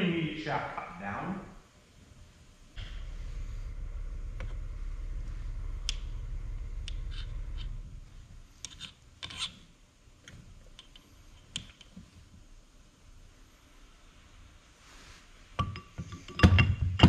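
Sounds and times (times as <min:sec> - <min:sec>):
low rubbing rumble: 0:02.4 - 0:09.2.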